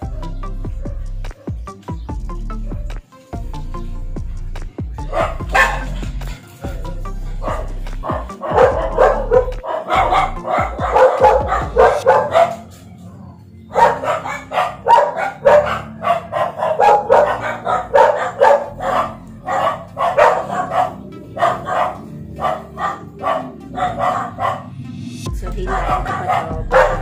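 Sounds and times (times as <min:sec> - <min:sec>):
small dog barking rapidly: 0:05.0 - 0:06.1, 0:07.4 - 0:12.7, 0:13.7 - 0:24.7, 0:25.6 - 0:27.0.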